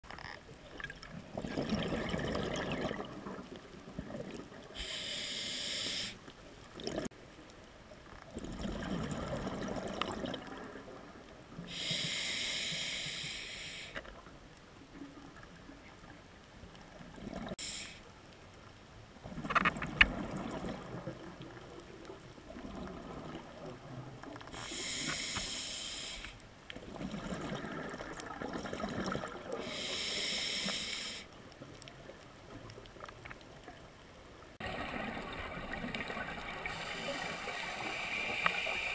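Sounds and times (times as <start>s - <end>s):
exhaled air bubbling: 0.6s - 5.4s, 6.6s - 7.2s, 8.3s - 11.1s, 22.4s - 25.0s, 26.8s - 30.8s, 34.6s - 38.9s
regulator inhale hiss: 4.7s - 6.3s, 11.7s - 14.2s, 17.6s - 18.2s, 24.5s - 26.5s, 29.6s - 31.4s, 36.6s - 38.9s.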